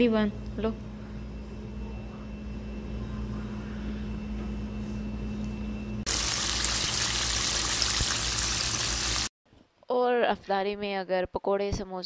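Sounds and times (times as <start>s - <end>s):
low hum: 0.0s - 9.2s
chicken deep-frying in oil: 6.1s - 9.3s.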